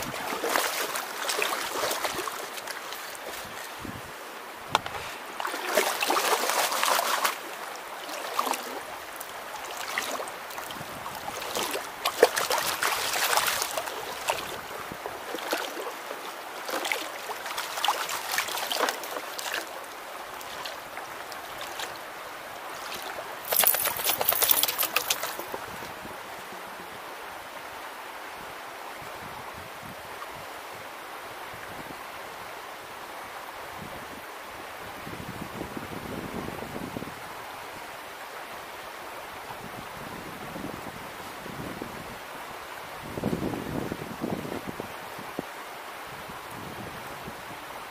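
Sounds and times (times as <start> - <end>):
water splashing and sloshing: 0.0 - 27.3
creek trickling: 0.0 - 29.0
gravel rattling in a pan: 23.5 - 25.4.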